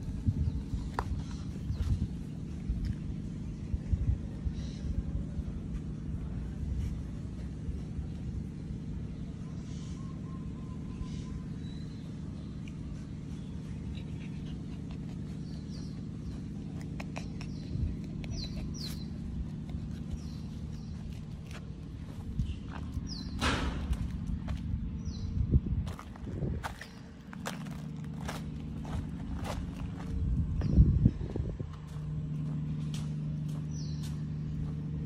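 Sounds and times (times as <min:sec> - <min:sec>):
low mechanical hum: 0:00.0 - 0:35.0.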